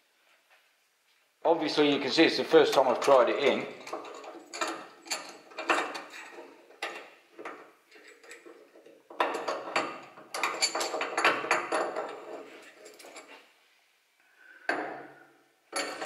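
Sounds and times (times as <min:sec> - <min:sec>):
metal bolt knocking and scraping: 0:02.7 - 0:13.4, 0:15.7 - 0:16.0.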